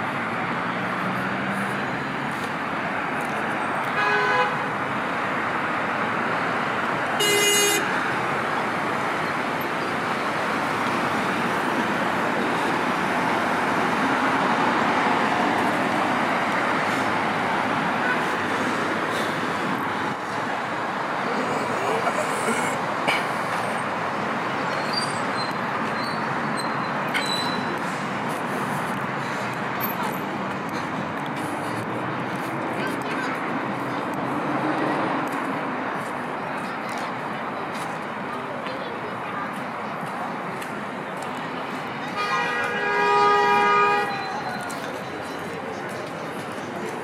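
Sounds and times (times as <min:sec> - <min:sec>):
road traffic noise: 0:00.0 - 0:47.0
car horn toot: 0:04.0 - 0:04.6, 0:07.2 - 0:07.9, 0:42.2 - 0:44.2.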